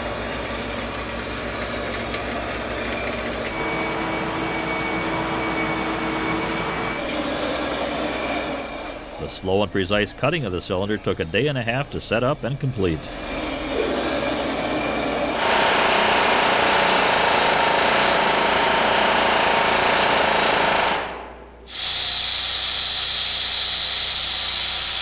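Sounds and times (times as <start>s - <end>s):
air tool with high whine: 0.0s - 9.3s, 12.9s - 25.0s
pneumatic air hammer on metal: 13.6s - 25.0s.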